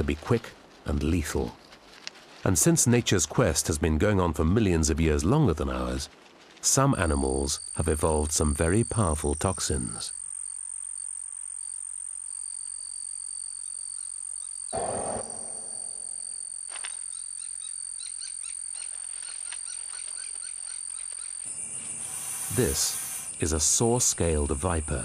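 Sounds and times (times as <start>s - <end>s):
rustle: 0.0s - 25.0s
insect chirps: 4.5s - 25.0s
insect trilling: 6.8s - 25.0s.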